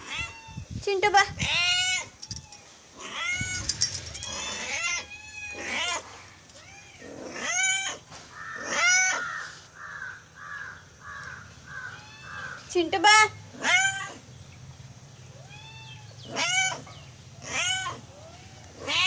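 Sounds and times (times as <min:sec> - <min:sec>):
cat meowing loudly: 0:04.3 - 0:08.0, 0:11.7 - 0:12.7, 0:15.3 - 0:16.8, 0:17.5 - 0:19.0.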